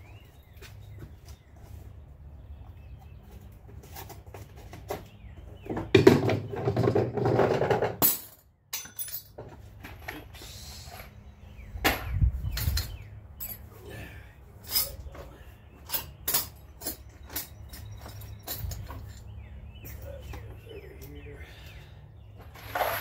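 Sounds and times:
rattling and rummaging: 0:03.7 - 0:10.3, 0:14.6 - 0:20.1, 0:22.4 - 0:23.0
hand tools clicking and clinking: 0:08.0 - 0:10.2, 0:12.5 - 0:13.7, 0:14.6 - 0:21.2.

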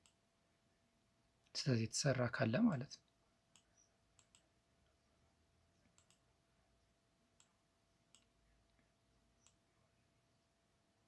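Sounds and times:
computer mouse clicks: 0:00.0 - 0:00.2, 0:03.5 - 0:04.5, 0:05.8 - 0:06.3, 0:07.4 - 0:08.8, 0:09.4 - 0:09.6.

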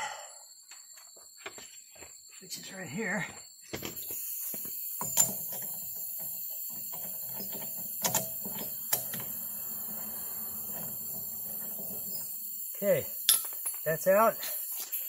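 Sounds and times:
sharp metal clicks and clinks: 0:11.3 - 0:15.0.

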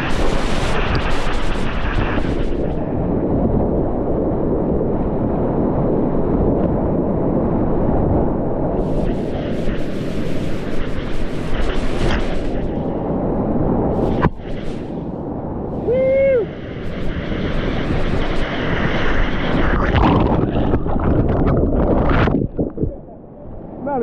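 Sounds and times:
wind buffeting microphone: 0:00.0 - 0:24.0
person shouting: 0:15.8 - 0:16.5.

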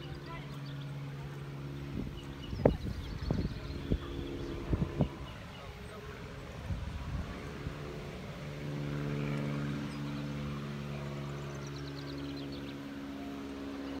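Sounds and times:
engine running steadily: 0:00.0 - 0:14.0.

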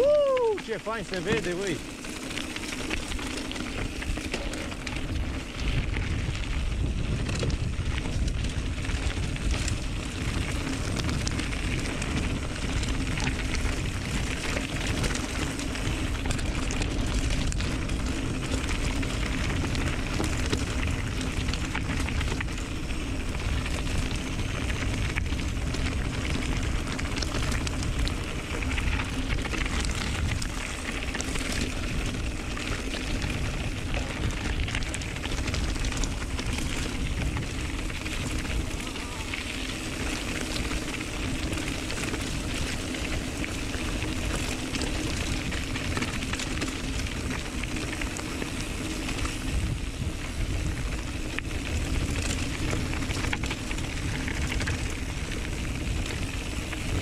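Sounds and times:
bike rattles and clicks: 0:00.0 - 0:57.0
tyres rumbling over dirt and stones: 0:00.0 - 0:57.0
wind on microphone: 0:05.0 - 0:40.3.

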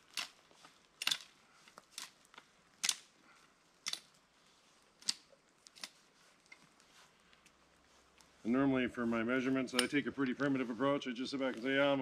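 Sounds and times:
dry twigs cracking: 0:00.0 - 0:08.4.

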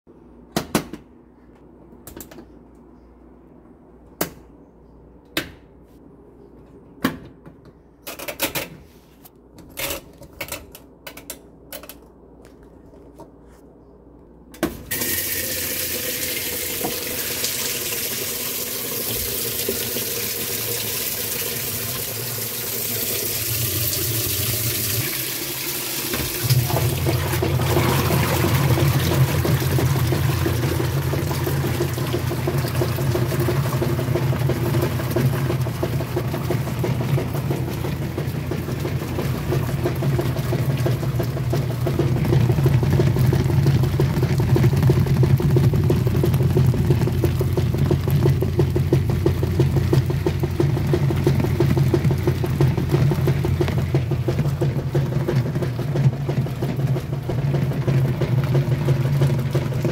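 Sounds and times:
water pouring into tub: 0:14.9 - 0:59.9.

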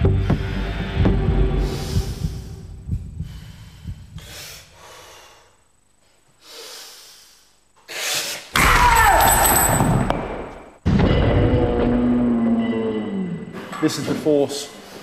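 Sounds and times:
background music: 0:00.0 - 0:03.4
man taking sharp forceful breaths: 0:00.0 - 0:08.5.

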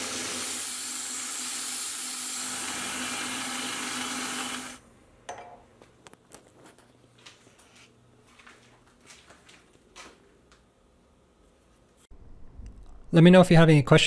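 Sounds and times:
milling machine cutting metal: 0:00.0 - 0:04.8.

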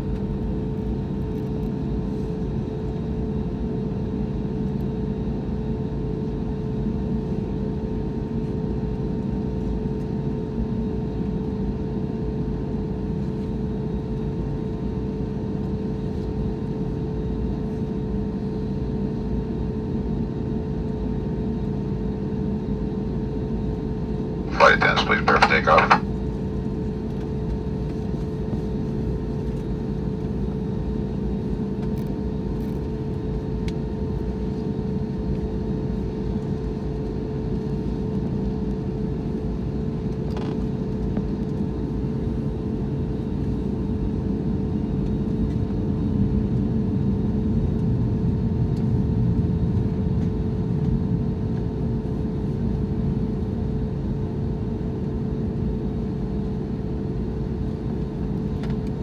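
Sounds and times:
airplane cabin engine rumble: 0:24.5 - 0:26.0.

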